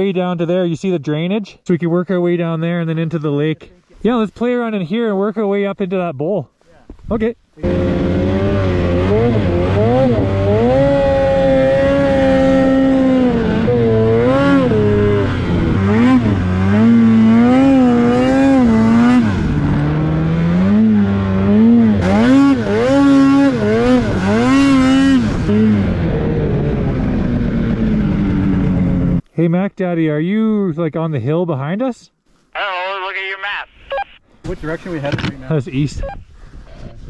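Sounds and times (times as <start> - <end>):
snowmobile engine revving: 7.6 - 28.6.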